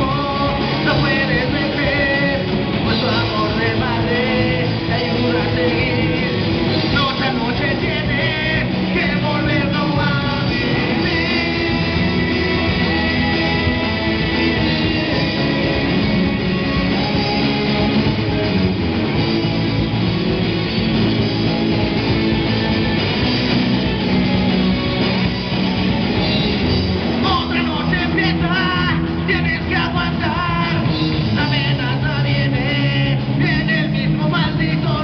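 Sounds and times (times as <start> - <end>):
man singing: 0.0 - 17.9, 27.2 - 35.0
bass guitar: 0.0 - 35.0
drum kit: 0.0 - 35.0
electric guitars: 0.0 - 35.0.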